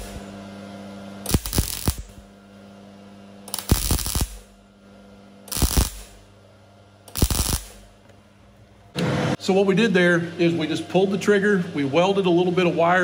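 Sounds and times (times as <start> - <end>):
welding arc crackling: 0.0 - 0.2, 1.2 - 2.4, 3.5 - 4.6, 5.5 - 6.3, 7.1 - 8.0
faint steady hum: 0.0 - 9.0.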